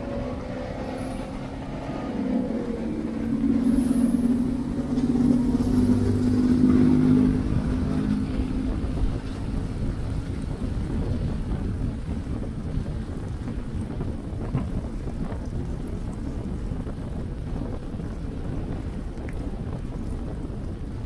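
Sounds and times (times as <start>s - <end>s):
vehicle engine humming: 0.0s - 12.5s
low traffic rumble: 0.0s - 21.0s.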